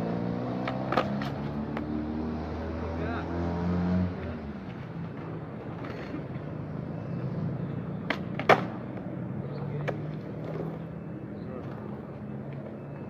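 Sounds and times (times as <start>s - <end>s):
skateboard wheels rolling on concrete: 0.0s - 2.7s, 4.1s - 6.8s, 7.6s - 13.0s
skateboard clacks: 0.6s - 1.8s, 8.1s - 8.8s, 9.8s - 10.8s.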